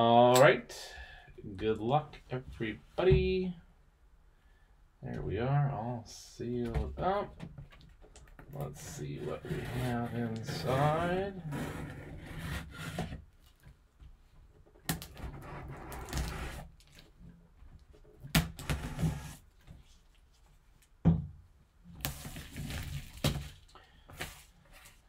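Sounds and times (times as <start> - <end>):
gloves scraping cardboard: 9.0 - 13.3, 15.2 - 16.7.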